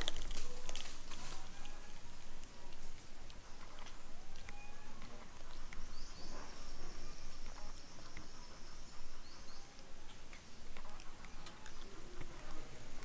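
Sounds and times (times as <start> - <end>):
faint clicks: 0.0 - 6.6, 9.7 - 13.0
insect buzzing: 0.0 - 13.0.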